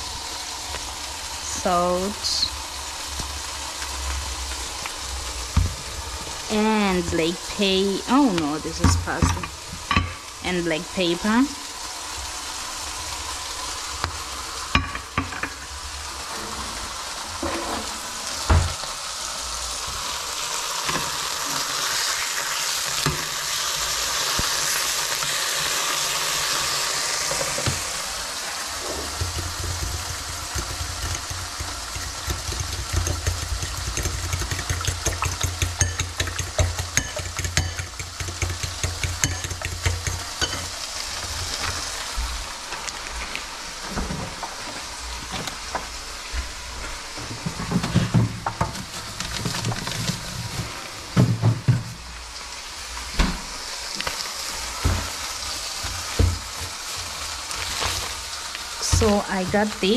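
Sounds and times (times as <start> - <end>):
food sizzling in a frying pan: 0.0 - 59.9
plastic packaging crinkling: 48.7 - 50.6, 56.7 - 58.6.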